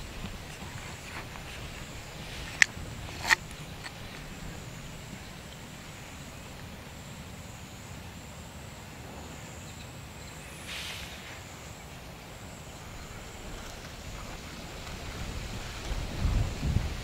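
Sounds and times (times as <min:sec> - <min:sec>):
low rumble of wind: 0:00.0 - 0:17.0
brief rustle: 0:00.2 - 0:04.4.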